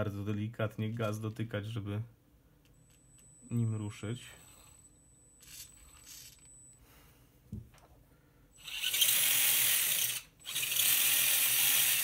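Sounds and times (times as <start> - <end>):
toy car electric motor whirring: 5.4 - 6.4, 8.6 - 12.0.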